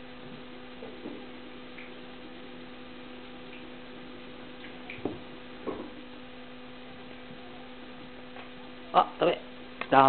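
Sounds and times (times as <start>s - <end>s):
electrical hum: 0.0s - 10.0s.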